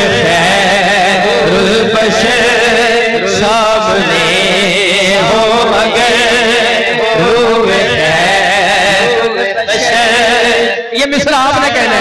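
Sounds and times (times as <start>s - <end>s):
man singing: 0.0s - 12.0s.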